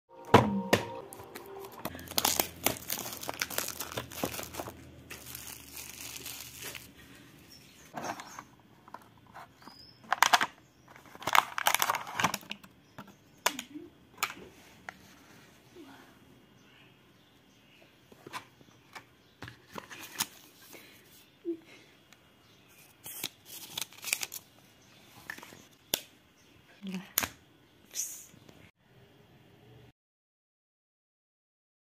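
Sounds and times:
packaging rustling and crinkling: 0:01.4 - 0:08.2, 0:10.1 - 0:12.6, 0:23.0 - 0:24.5.

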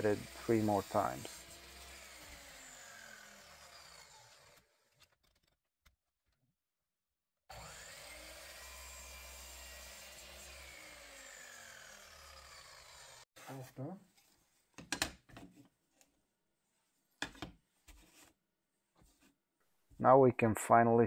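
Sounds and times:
faint sawing of wood: 0:00.0 - 0:05.1, 0:07.5 - 0:14.4.

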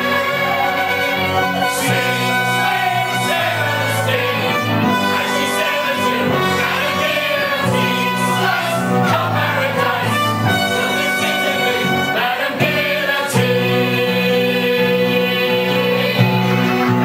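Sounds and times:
orchestra playing sustained chords: 0:00.0 - 0:13.0
chorus singing: 0:00.0 - 0:17.0.

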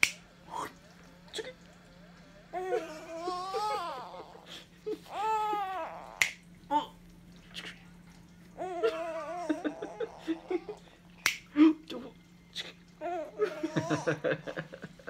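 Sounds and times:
finger snaps: 0:00.0 - 0:00.2, 0:06.2 - 0:06.5, 0:11.2 - 0:11.5
low steady hum: 0:00.0 - 0:15.0
baby cooing: 0:02.5 - 0:04.4, 0:05.0 - 0:07.0, 0:08.6 - 0:10.8, 0:13.0 - 0:14.1.

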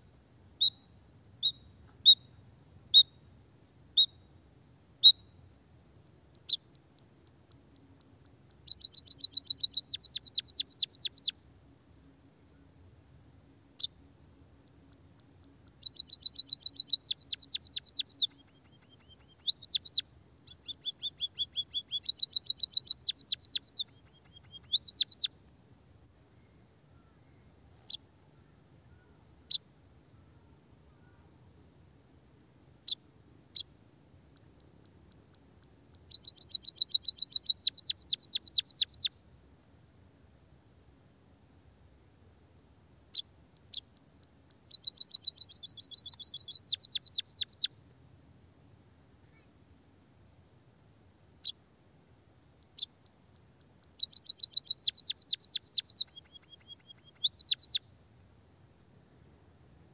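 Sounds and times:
bird chirping and trilling: 0:08.7 - 0:11.3, 0:15.7 - 0:25.3, 0:36.1 - 0:39.1, 0:44.7 - 0:47.7, 0:54.0 - 0:57.8.

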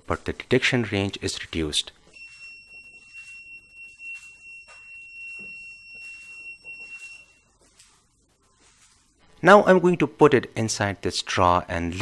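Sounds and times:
high-pitched buzzer tone: 0:02.2 - 0:07.4.

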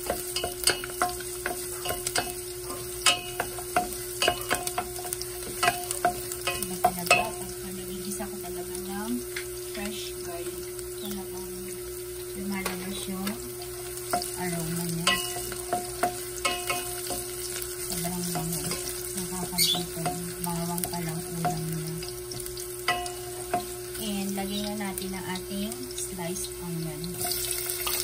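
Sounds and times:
wooden spoon scraping a pan: 0:00.0 - 0:07.5, 0:12.6 - 0:24.0
garlic sizzling in hot oil: 0:00.0 - 0:28.0.

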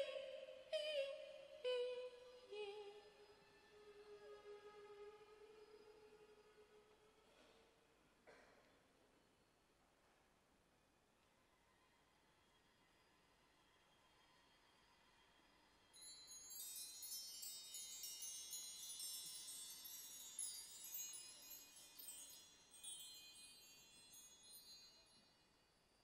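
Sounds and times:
bar chimes ringing: 0:16.0 - 0:25.2.

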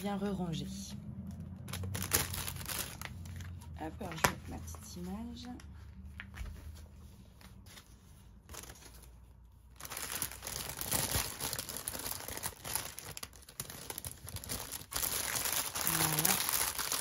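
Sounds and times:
plastic bag crinkling: 0:01.6 - 0:03.7, 0:08.4 - 0:17.0.

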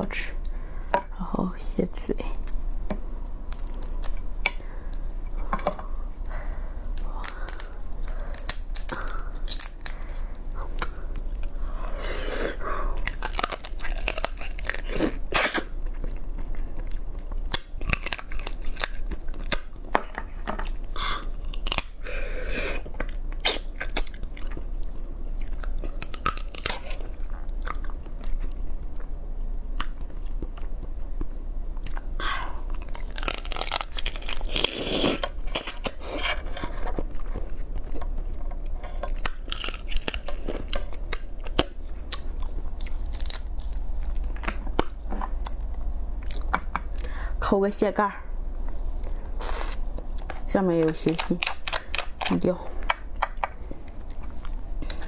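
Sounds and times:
chewing and crunching crab: 0:06.6 - 0:12.0, 0:12.9 - 0:22.1, 0:22.8 - 0:47.1, 0:49.0 - 0:55.0
crab shell cracking: 0:06.9 - 0:10.2, 0:13.0 - 0:15.7, 0:17.4 - 0:19.7, 0:21.5 - 0:22.0, 0:25.4 - 0:27.0, 0:32.8 - 0:36.0, 0:39.0 - 0:45.7, 0:50.1 - 0:55.0.

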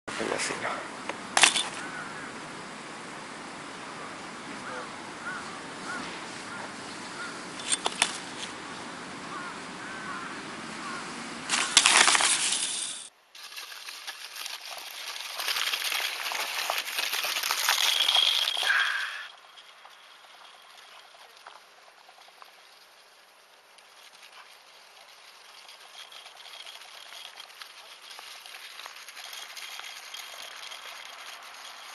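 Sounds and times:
steady outdoor hiss: 0:00.1 - 0:31.9
wheels crunching over dry crust: 0:00.2 - 0:02.6, 0:04.0 - 0:31.9
clattering noise: 0:07.6 - 0:08.5, 0:11.5 - 0:22.6.

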